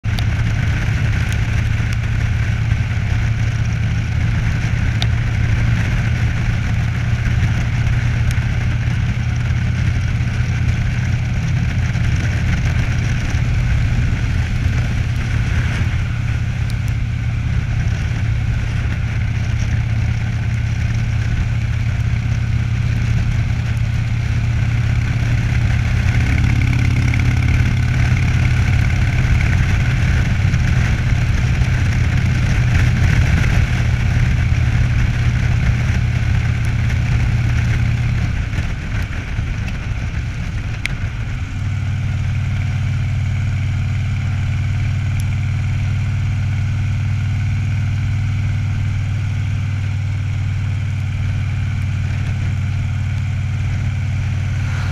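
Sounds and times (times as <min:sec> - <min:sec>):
motorcycle engine cruising: 0:00.0 - 0:54.9
wind noise on microphone: 0:54.1 - 0:54.9.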